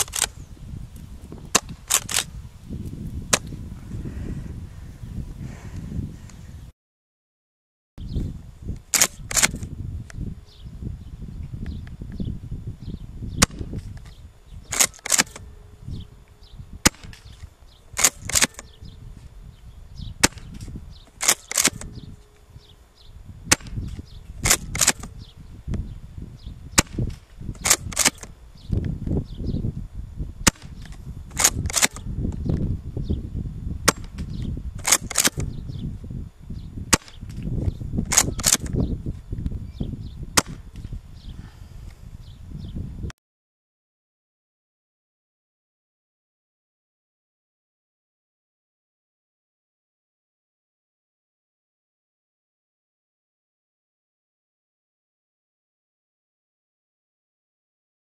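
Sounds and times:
shotgun pump clacking: 0.0s - 0.4s, 1.9s - 2.3s, 8.9s - 9.6s, 14.7s - 15.4s, 18.0s - 18.6s, 21.2s - 21.9s, 24.4s - 25.1s, 27.6s - 28.3s, 31.3s - 32.0s, 34.8s - 35.5s, 38.1s - 38.8s
wind buffeting microphone: 0.0s - 6.7s, 8.0s - 43.1s
airsoft shotgun cracks: 8.9s - 9.6s, 14.7s - 15.4s, 18.0s - 18.6s, 21.2s - 21.9s, 24.4s - 25.1s, 26.8s - 28.3s, 30.5s - 32.0s, 34.8s - 35.5s, 38.1s - 38.7s.

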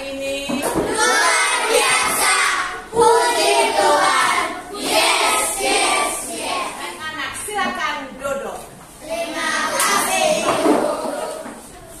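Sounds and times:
children singing: 0.8s - 6.8s, 9.0s - 11.6s.

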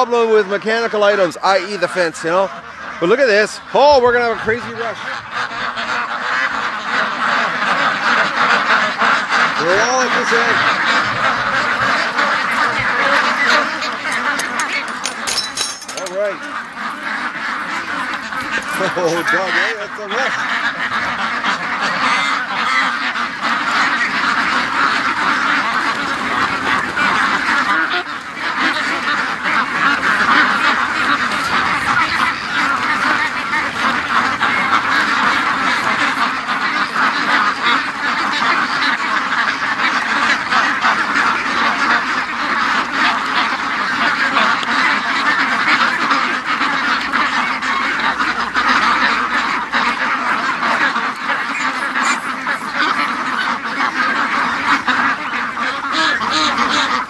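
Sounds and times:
flock of ducks quacking: 0.0s - 57.0s.

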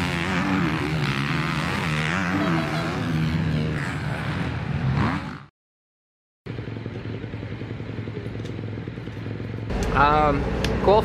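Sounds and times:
motocross bike engines revving: 0.0s - 5.5s, 6.5s - 11.0s
low mechanical hum: 6.6s - 11.0s.

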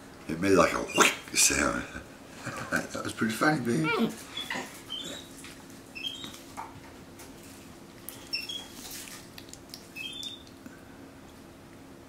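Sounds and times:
monkey high chirps: 10.0s - 10.5s.

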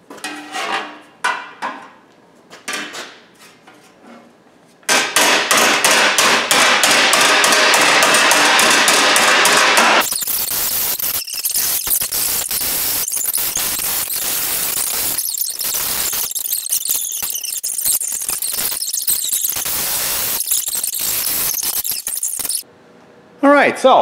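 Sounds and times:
hammer striking steel sheet: 4.9s - 10.1s.

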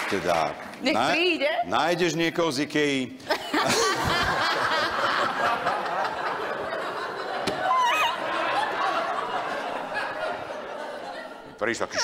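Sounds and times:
woman laughing loudly: 3.3s - 9.3s
audience laughing: 3.3s - 12.0s
high laughing cry: 3.4s - 11.3s.

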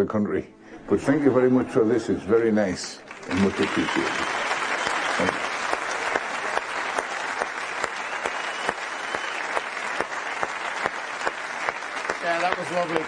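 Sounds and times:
audience applauding: 3.0s - 13.0s.

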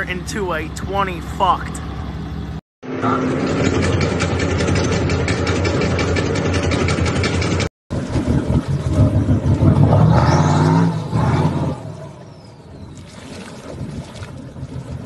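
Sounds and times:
truck engine revving hard: 7.5s - 12.1s.

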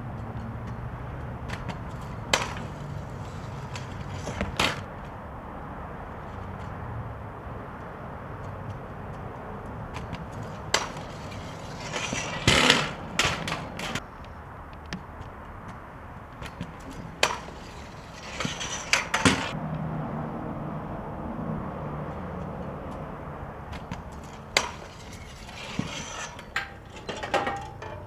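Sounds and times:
scooter deck and wheels clacking: 0.2s - 5.2s, 8.6s - 19.6s, 22.4s - 28.0s
scooter scraping concrete: 1.5s - 4.9s, 9.9s - 14.1s, 16.3s - 19.6s, 23.7s - 28.0s.

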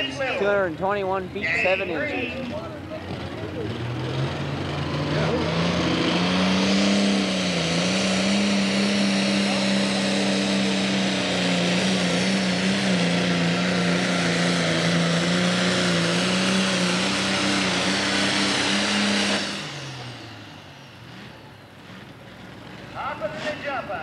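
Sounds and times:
tractor diesel engine under load: 0.0s - 24.0s.

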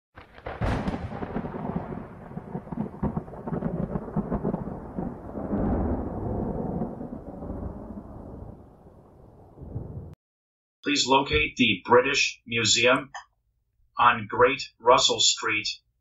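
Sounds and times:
deep rumble with sharp crackles: 0.2s - 10.2s.

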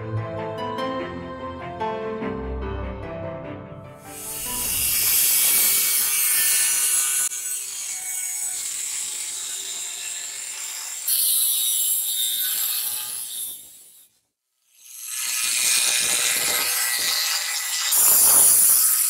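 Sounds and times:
angle grinder cutting steel: 4.1s - 14.1s, 14.7s - 19.0s.

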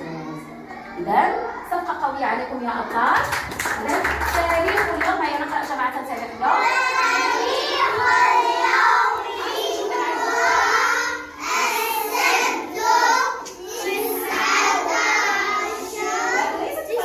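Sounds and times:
children singing together: 6.6s - 17.0s.

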